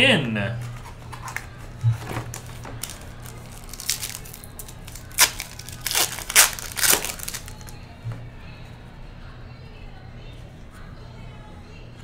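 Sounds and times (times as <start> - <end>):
foil wrapper tearing and crinkling: 0.8 - 1.7, 2.3 - 7.8.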